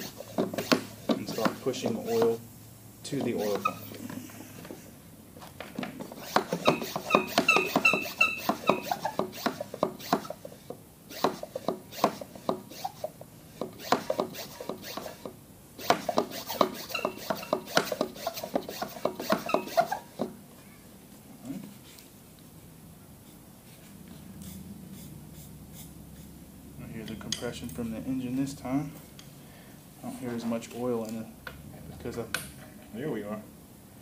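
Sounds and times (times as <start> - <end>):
hand pump plunger strokes squeaking: 0.0 - 2.4, 3.1 - 4.7, 6.0 - 10.5, 11.1 - 20.3.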